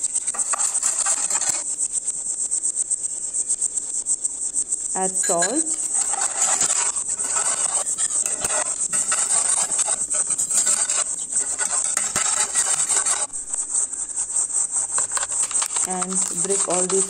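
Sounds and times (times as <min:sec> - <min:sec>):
ladle scraping metal pan: 0:00.3 - 0:01.6, 0:05.3 - 0:13.8, 0:14.9 - 0:17.0.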